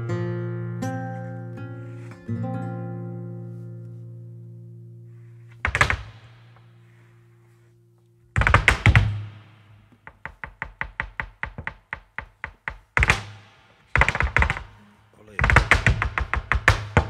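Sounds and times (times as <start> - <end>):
dancer's feet striking floor: 5.5 - 7.6, 8.3 - 14.8, 15.4 - 17.0.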